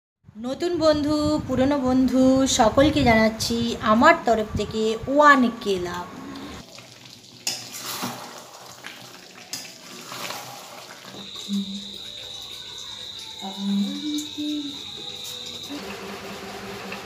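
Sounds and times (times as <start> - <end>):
metal spatula scraping pan: 7.4 - 8.8, 9.5 - 11.8
high insect trill: 10.3 - 15.9.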